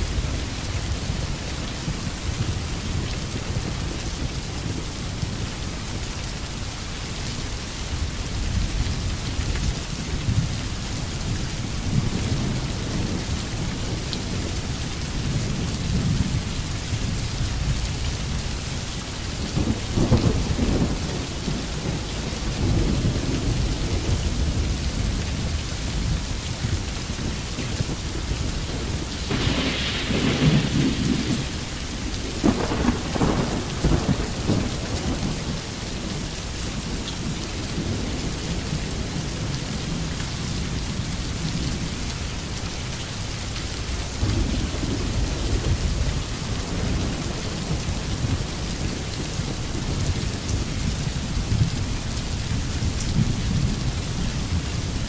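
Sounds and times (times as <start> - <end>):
steady rain: 0.0 - 55.0
rolling thunder: 19.5 - 36.2.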